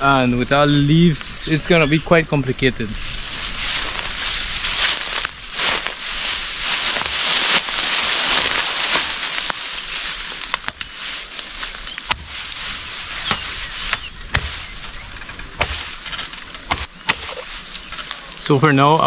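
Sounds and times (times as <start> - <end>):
dry bamboo leaves rustling: 0.0 - 19.0
bamboo stem cracking: 6.7 - 18.5.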